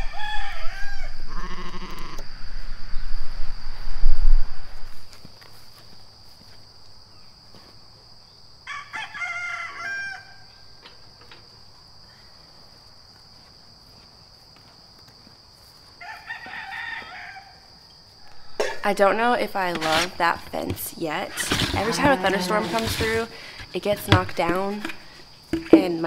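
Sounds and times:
rooster crowing: 0.0s - 2.2s, 8.6s - 10.6s, 16.0s - 18.6s, 21.8s - 22.8s.

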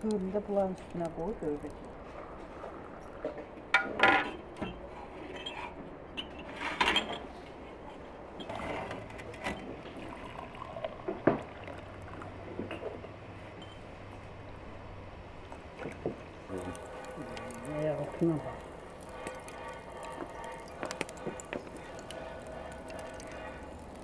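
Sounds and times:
water running into a glass: 16.5s - 24.0s.

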